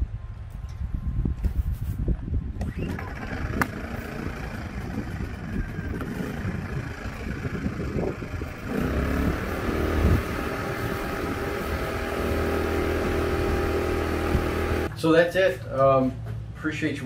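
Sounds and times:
generator engine running: 2.6 - 14.9.

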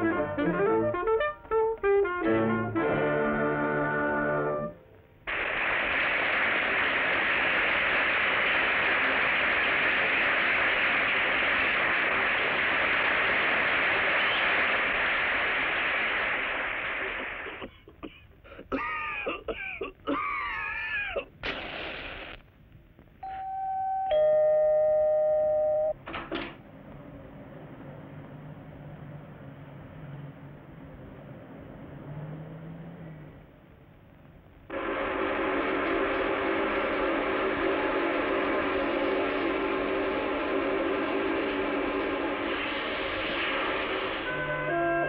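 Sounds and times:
two-tone doorbell chime: 23.2 - 26.0.

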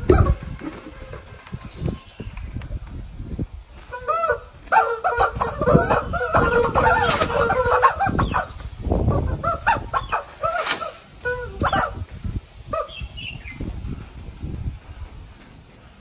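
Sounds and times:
rubber chickens squawking: 0.0 - 2.0, 3.7 - 13.5
broom beating dirt ground: 10.2 - 12.3.

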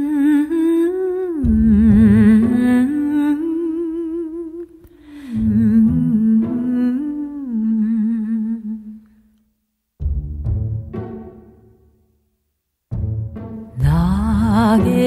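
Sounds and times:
hummed vocal with vibrato: 0.0 - 9.2, 13.8 - 15.0.

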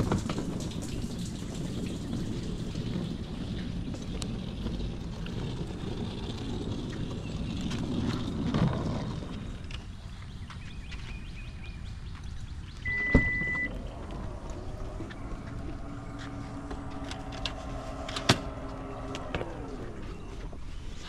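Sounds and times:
car cabin low rumble: 11.0 - 21.0
short electronic beep: 12.9 - 13.8
steady hum: 12.9 - 21.0.

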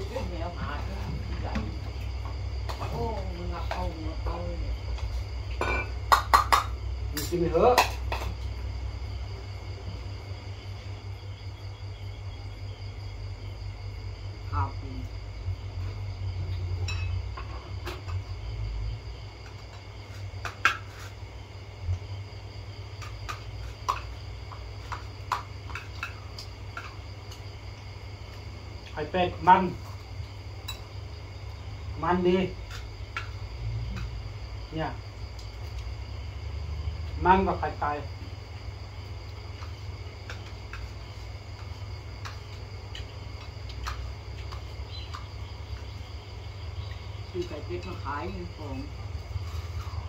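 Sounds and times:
crickets chirring: 0.0 - 50.0
spoons clinking on ceramic plates: 16.8 - 17.1.

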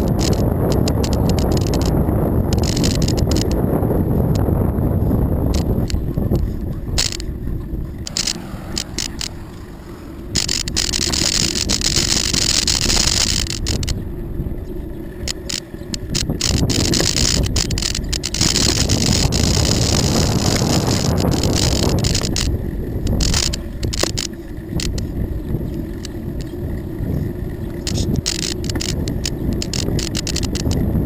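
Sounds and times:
bike clicking and rattling: 0.0 - 31.0
wind buffeting microphone: 0.0 - 31.0
bicycle tyres hissing: 8.1 - 13.9, 15.4 - 30.6.

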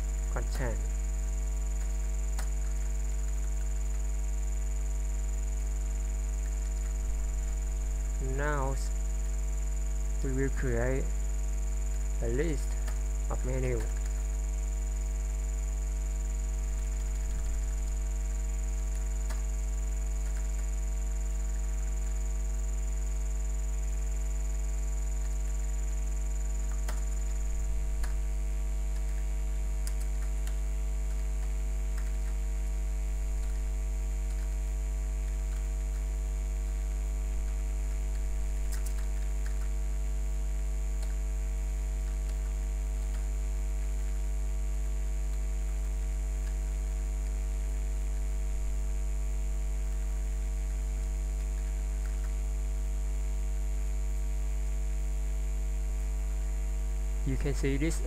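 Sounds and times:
electrical mains hum: 0.0 - 58.0
faint clicks: 11.9 - 14.2, 18.8 - 20.8, 26.6 - 28.2, 28.9 - 32.4, 33.3 - 36.8, 37.4 - 39.8, 41.0 - 41.2, 42.0 - 43.3.

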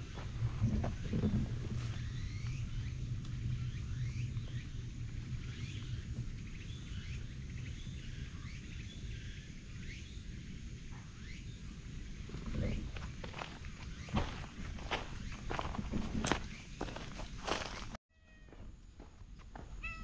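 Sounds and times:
low steady rumble: 0.0 - 13.4
small birds chirping: 0.0 - 18.0.

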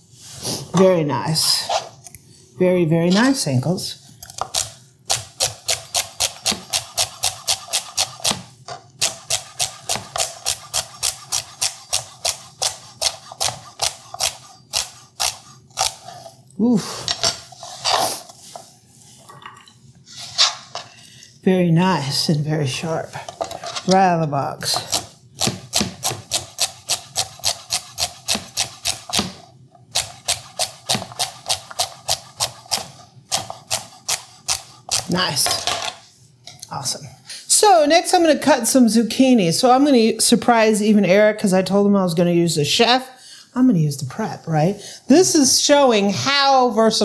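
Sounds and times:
knife chopping on cutting board: 24.8 - 29.4.

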